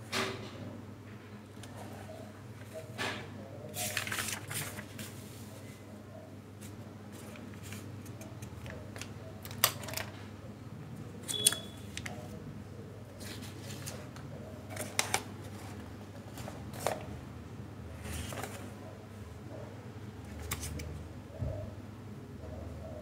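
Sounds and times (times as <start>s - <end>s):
paper rustling and crinkling: 3.7s - 5.8s, 6.6s - 10.1s, 13.2s - 17.1s, 18.0s - 18.8s, 20.3s - 20.9s.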